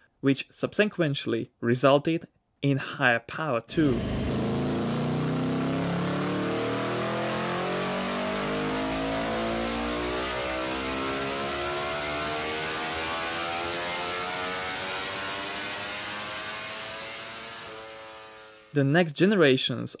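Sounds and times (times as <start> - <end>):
racing engine revving up: 3.7 - 18.7.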